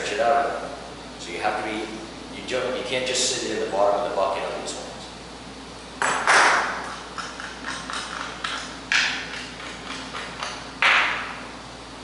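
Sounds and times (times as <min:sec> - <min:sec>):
sharp knocks of tools: 0:06.0 - 0:11.3.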